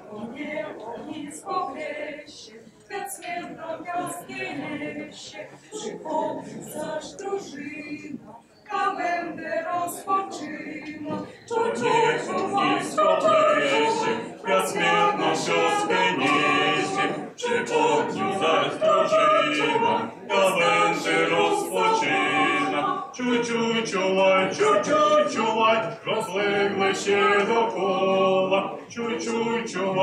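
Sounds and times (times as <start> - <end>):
group singing without instruments: 0.0 - 30.0.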